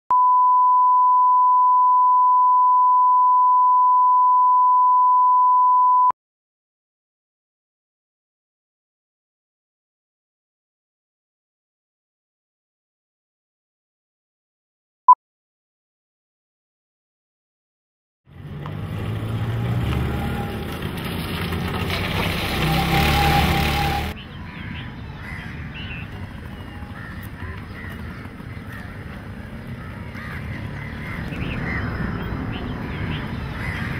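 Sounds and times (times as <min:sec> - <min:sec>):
steady reference tone beep: 0:00.1 - 0:06.1
vehicle engine hum: 0:18.3 - 0:33.9
birds calling: 0:23.5 - 0:33.9
crows cawing: 0:24.4 - 0:26.1, 0:26.8 - 0:32.2, 0:32.8 - 0:33.9.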